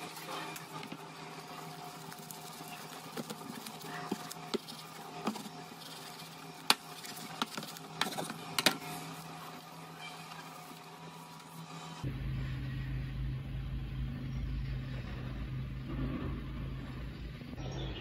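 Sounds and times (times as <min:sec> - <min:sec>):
low hum: 0:08.3 - 0:18.0.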